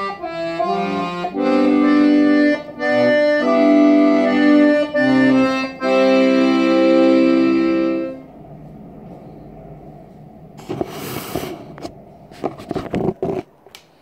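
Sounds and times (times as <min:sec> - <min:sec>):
accordion chord: 0:00.0 - 0:08.8.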